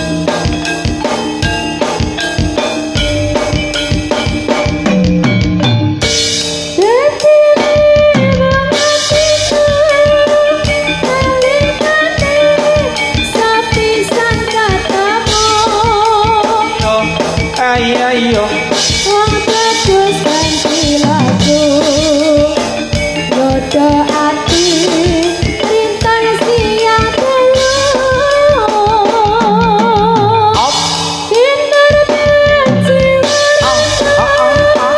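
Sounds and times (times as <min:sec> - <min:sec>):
drums and percussion beat: 0:00.0 - 0:34.9
woman singing: 0:06.8 - 0:17.2, 0:17.9 - 0:34.9.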